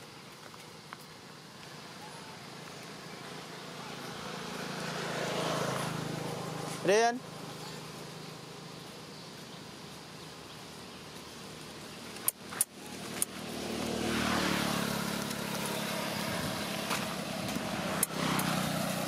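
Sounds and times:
vehicle engine running: 0:00.0 - 0:19.0
sharp clicks: 0:12.0 - 0:13.4.

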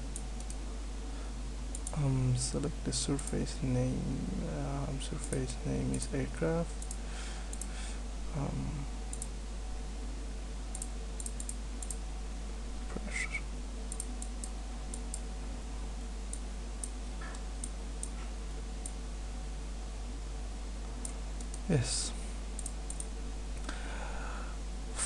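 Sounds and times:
low electrical hum: 0:00.0 - 0:25.0
computer mouse clicks: 0:00.1 - 0:00.6, 0:01.7 - 0:02.0, 0:05.2 - 0:06.0, 0:06.8 - 0:07.7, 0:09.1 - 0:09.3, 0:10.7 - 0:12.0, 0:13.9 - 0:15.2, 0:16.3 - 0:19.0, 0:22.6 - 0:23.1.

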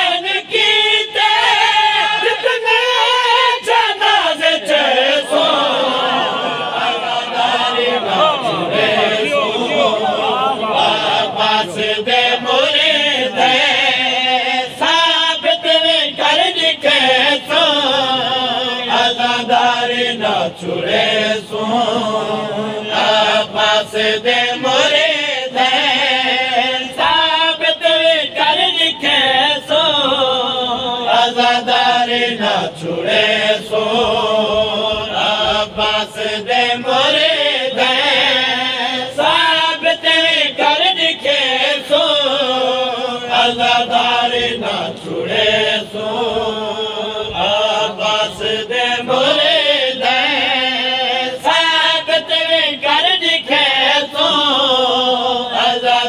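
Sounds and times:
voices chanting along: 0:00.0 - 0:56.0
man chanting a lament: 0:00.7 - 0:21.2.

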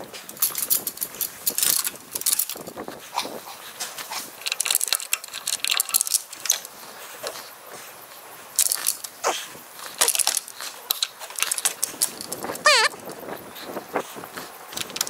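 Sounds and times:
metal gate chain jangling: 0:00.0 - 0:02.8, 0:03.9 - 0:07.5, 0:08.6 - 0:09.2, 0:09.8 - 0:13.2.

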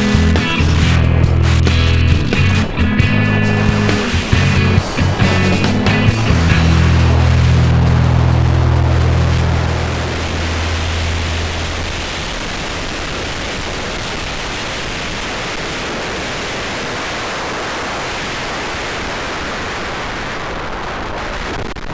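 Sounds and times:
low music tones: 0:00.0 - 0:12.4
road noise: 0:00.0 - 0:21.9
wind rushing on microphone: 0:00.0 - 0:21.9.

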